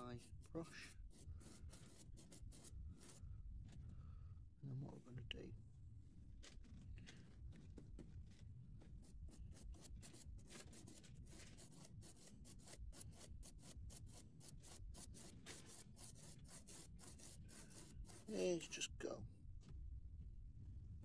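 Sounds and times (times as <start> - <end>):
paintbrush scrubbing on card: 0.0 - 3.8, 6.6 - 19.2.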